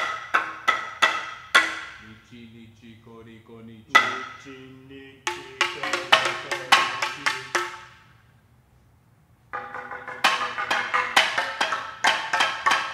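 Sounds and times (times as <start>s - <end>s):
ringing hand percussion strokes: 3.9s - 8.1s, 9.6s - 12.9s.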